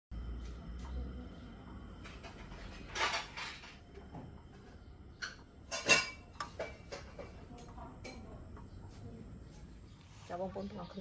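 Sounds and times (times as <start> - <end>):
dishes clinking and knocking: 2.0 - 8.4.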